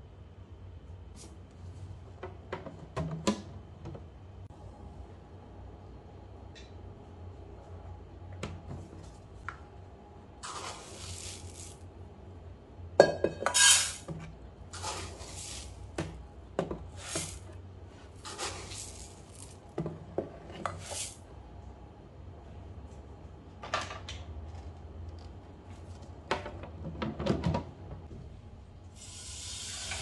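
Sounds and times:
rice grains pouring into pot: 10.4 - 11.8, 14.8 - 15.8, 18.2 - 19.6, 20.8 - 21.2, 29.0 - 30.0
cup clinking against pot: 13.0 - 13.8.

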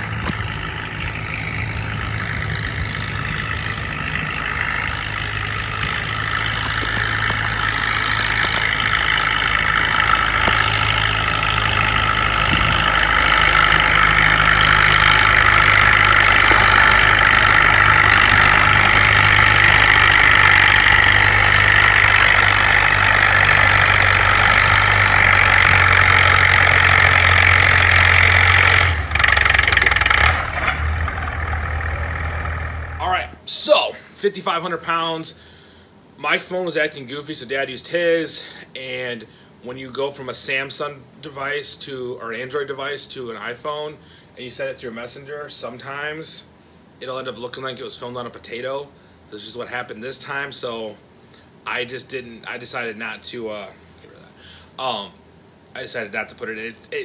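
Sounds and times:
tractor engine under load: 0.0 - 33.5.

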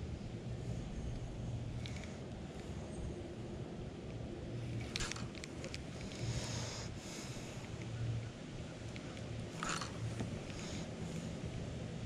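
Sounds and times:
fishing reel clicks and rustles: 1.7 - 2.8, 4.7 - 6.6.

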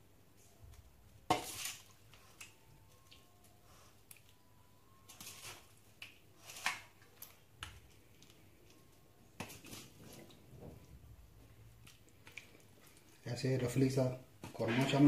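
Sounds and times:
metal spoon scraping steel pot: 14.6 - 15.0.

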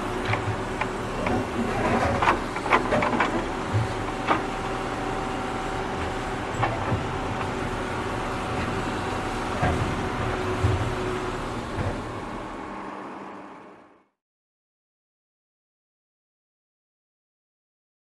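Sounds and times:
wheels digging loose dirt: 1.1 - 3.5.

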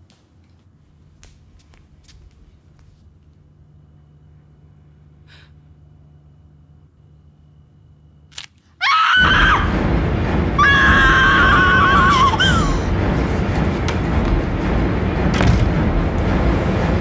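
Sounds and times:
horror music sting: 9.2 - 17.0.

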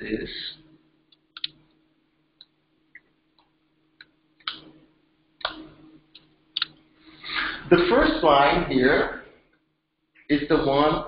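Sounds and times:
faint steady hum: 0.0 - 11.0
keyboard and mouse clicks: 1.2 - 1.6.

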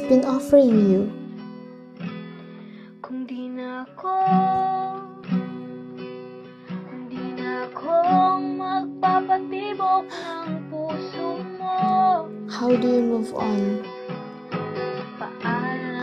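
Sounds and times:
strummed acoustic guitar: 0.0 - 16.0
woman singing: 2.8 - 5.8, 6.7 - 14.0, 15.0 - 16.0.

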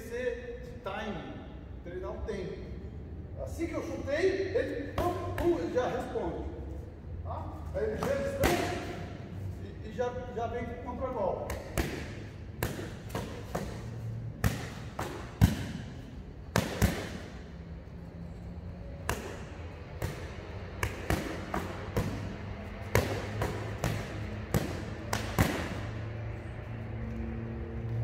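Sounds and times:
boxing gloves smacking pads: 7.9 - 9.0, 11.4 - 17.4, 19.0 - 26.0.

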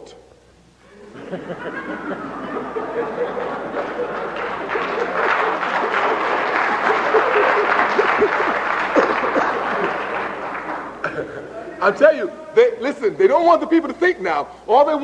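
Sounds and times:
audience applauding: 1.7 - 11.4.

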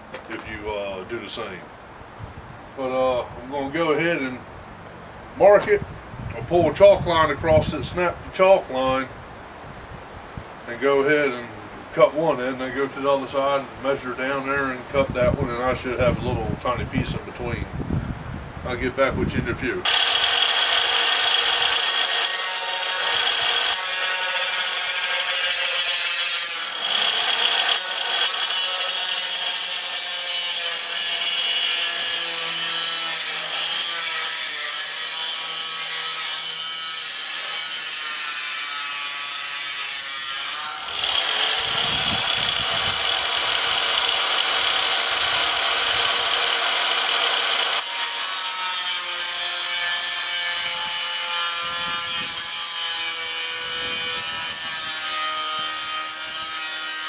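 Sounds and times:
angle grinder cutting metal: 19.8 - 57.0.

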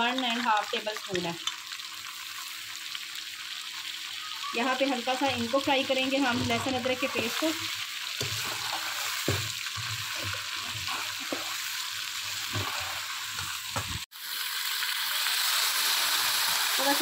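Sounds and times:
food sizzling in hot fat: 0.0 - 17.0
metal spoon scraping pan: 5.3 - 11.6.

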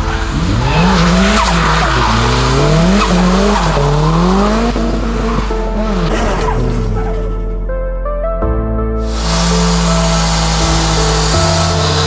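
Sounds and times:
tyres sliding on wet tarmac: 0.0 - 5.4
car engine revving: 0.0 - 7.2, 9.0 - 12.0.

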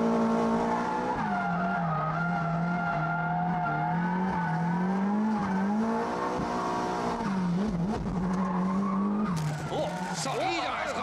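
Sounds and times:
car engine at high revs: 0.0 - 11.0.

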